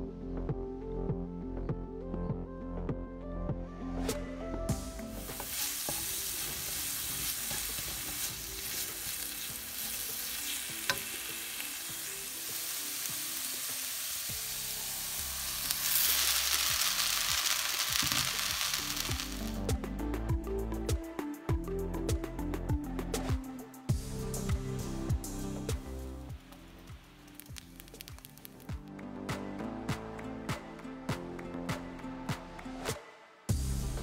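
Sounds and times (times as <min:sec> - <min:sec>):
vegetables sizzling in oil: 0:05.2 - 0:19.6, 0:27.3 - 0:28.7.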